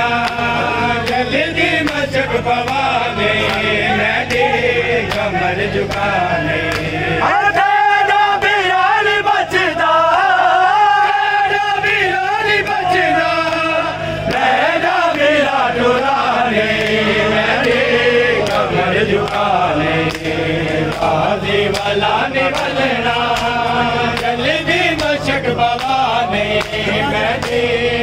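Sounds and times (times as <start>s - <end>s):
men chanting together: 0.0s - 28.0s
chest-beating slaps: 25.8s - 26.0s.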